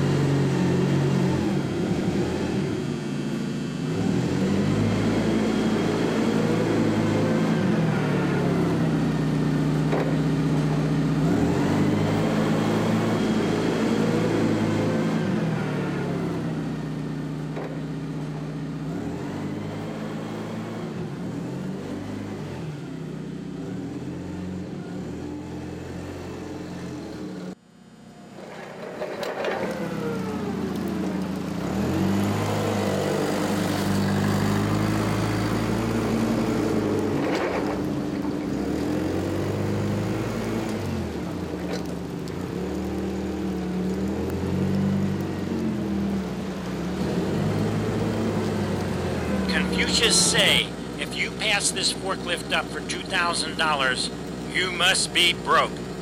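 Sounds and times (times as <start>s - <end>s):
forklift engine running: 45.5s - 56.0s.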